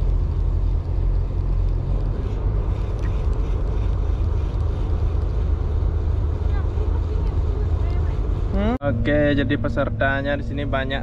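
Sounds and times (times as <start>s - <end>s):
ship engine low rumble: 0.0s - 11.0s.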